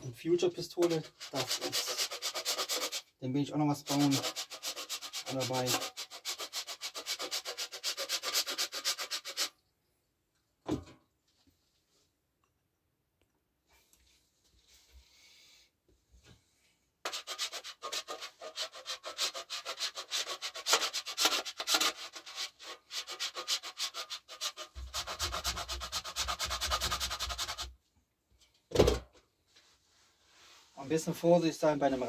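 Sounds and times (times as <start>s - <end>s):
wax scraping on metal grater: 0.8s - 3.0s, 3.8s - 9.5s, 17.1s - 27.7s
thump: 10.6s - 11.0s, 28.7s - 29.1s.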